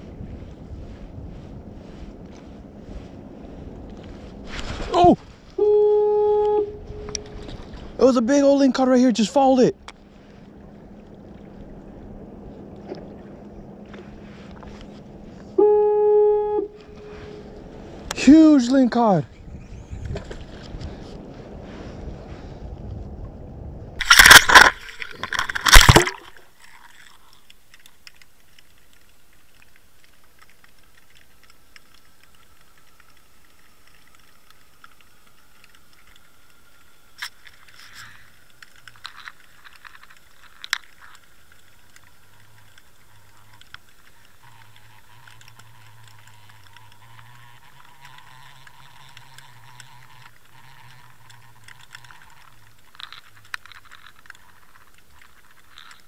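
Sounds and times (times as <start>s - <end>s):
small clicks: 24.0s - 56.0s.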